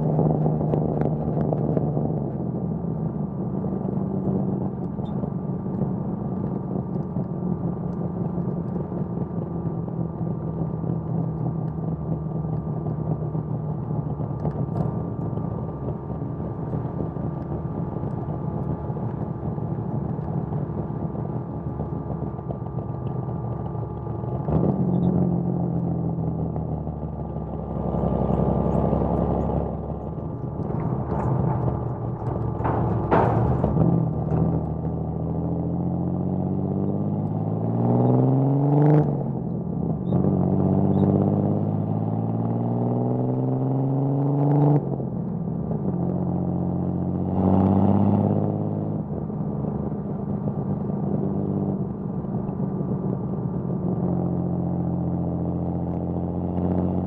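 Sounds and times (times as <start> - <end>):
deep low exhaust rumble: 0.0 - 38.1
car engine cruising: 0.0 - 57.0.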